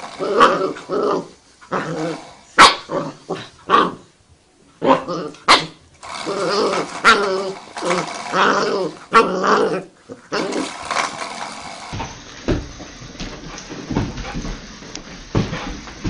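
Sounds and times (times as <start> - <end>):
puppy growling and whining: 0.0 - 4.1, 4.8 - 11.7.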